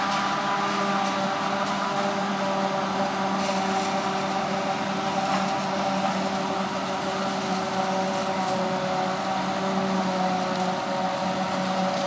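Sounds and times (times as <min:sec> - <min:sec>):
forage harvester droning: 0:00.0 - 0:12.0
tractor hauling trailer: 0:00.0 - 0:12.0.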